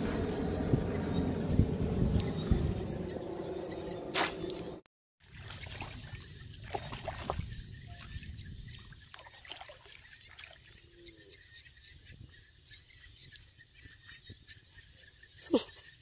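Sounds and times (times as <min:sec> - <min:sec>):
muddy water sloshing and trickling: 0:04.1 - 0:11.2
small water splashes: 0:05.2 - 0:11.0.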